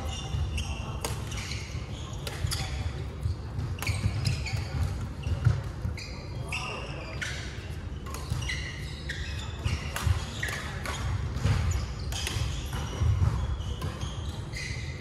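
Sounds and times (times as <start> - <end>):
shoes squeaking on floor: 0.0 - 15.0
racket hitting shuttlecock: 1.0 - 5.8, 8.0 - 8.9, 9.6 - 14.5.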